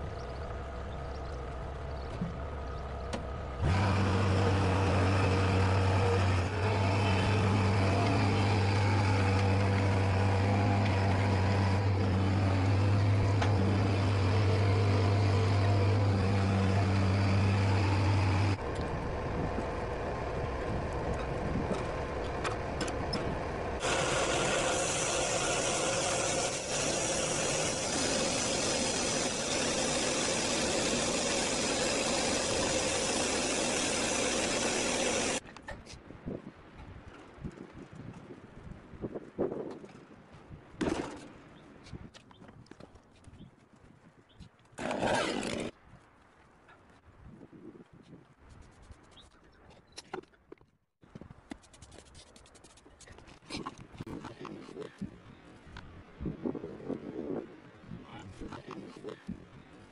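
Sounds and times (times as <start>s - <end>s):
sawmill engine under load: 0.0s - 35.4s, 44.8s - 45.7s
loader engine humming: 0.0s - 35.6s
saw blade cutting log: 3.6s - 18.6s, 23.8s - 35.4s, 44.8s - 45.8s.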